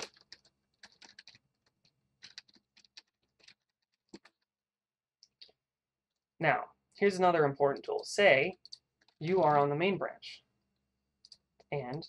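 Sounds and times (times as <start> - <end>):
keyboard and mouse clicking: 0.0 - 4.5, 7.7 - 9.6, 11.2 - 12.0.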